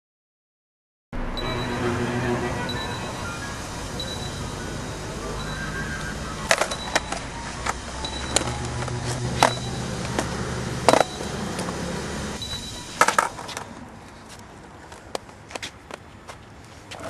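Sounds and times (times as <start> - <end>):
skateboard wheels rolling: 2.7 - 17.0
skateboards clacking on ground: 6.0 - 17.0.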